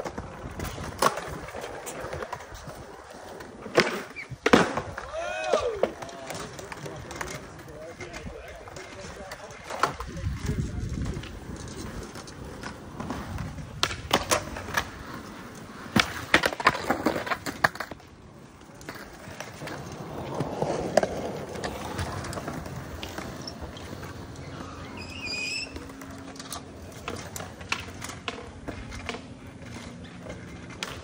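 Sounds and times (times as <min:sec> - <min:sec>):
skateboard wheels rolling: 0:00.0 - 0:31.0
skateboards clacking on ground: 0:00.0 - 0:31.0.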